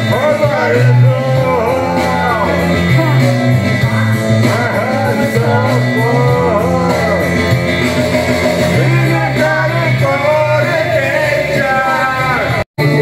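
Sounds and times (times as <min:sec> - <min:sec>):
person singing into microphone: 0:00.0 - 0:07.6, 0:08.6 - 0:13.0
backing track with bass line: 0:00.0 - 0:13.0.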